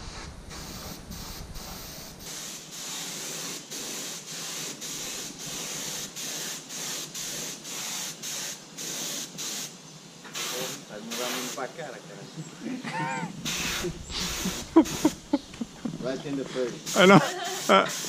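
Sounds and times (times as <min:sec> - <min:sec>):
spray gun hissing: 0:00.0 - 0:11.7, 0:13.3 - 0:18.0.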